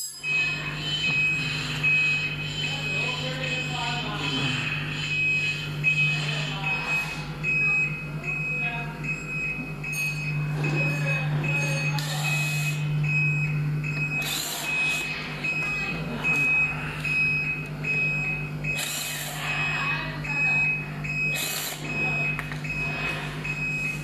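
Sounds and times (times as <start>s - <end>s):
high beeps: 0.0s - 24.0s
cordless impact wrench running: 21.3s - 21.8s.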